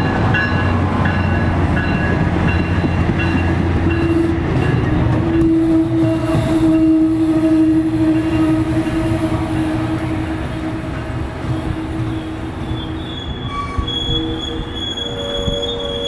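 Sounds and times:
train engine hum: 0.0s - 16.0s
train wheels rumbling on rails: 0.0s - 16.0s
high wheel squeal: 3.9s - 16.0s.

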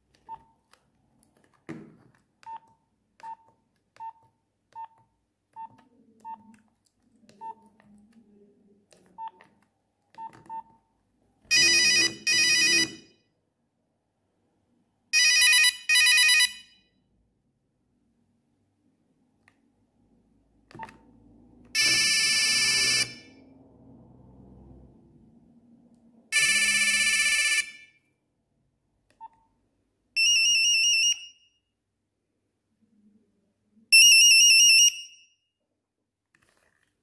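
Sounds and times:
keypad beep: 2.4s - 6.6s, 10.2s - 10.8s
phone ringtone electronic rings: 11.5s - 13.2s, 15.2s - 16.8s, 21.8s - 23.4s, 26.4s - 28.0s, 30.2s - 31.5s.

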